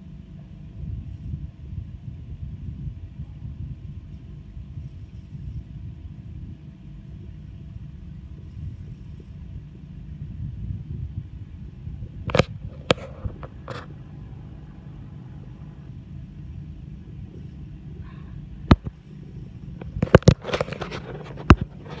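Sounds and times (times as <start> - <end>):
steady low rumble: 0.0 - 22.0
phone knocking and scraping: 12.2 - 14.2, 18.6 - 22.0.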